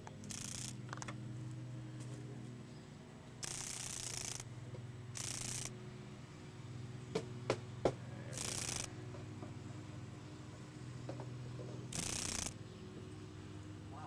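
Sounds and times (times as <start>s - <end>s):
dragonfly wings buzzing: 0.0s - 1.0s, 3.4s - 4.5s, 5.1s - 5.8s, 8.3s - 9.0s, 11.9s - 12.6s
sharp clicks: 0.1s - 1.2s, 3.4s - 4.5s, 5.2s - 5.7s, 8.4s - 8.9s, 11.9s - 12.6s.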